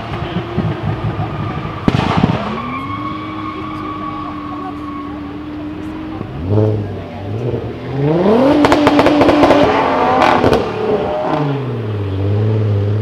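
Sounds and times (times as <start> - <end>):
exhaust crackling pops: 0.0 - 2.8
car engine revving: 0.0 - 13.0.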